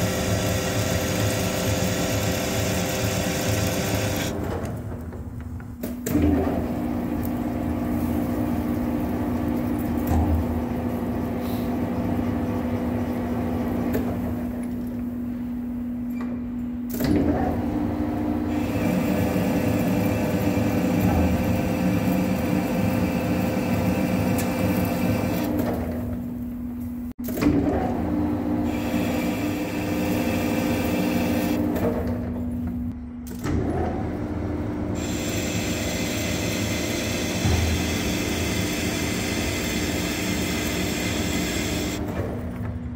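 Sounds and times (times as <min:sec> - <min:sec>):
lathe tool cutting metal: 0:00.0 - 0:04.3, 0:35.0 - 0:42.0
lathe motor and gearbox hum: 0:00.0 - 0:42.9.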